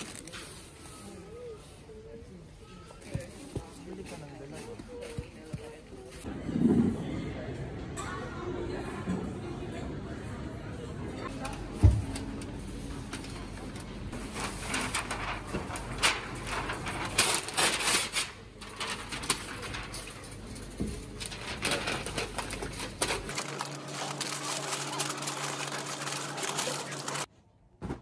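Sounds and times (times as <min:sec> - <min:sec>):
wrapping paper rustling and crinkling: 0:00.0 - 0:01.4, 0:14.1 - 0:27.3.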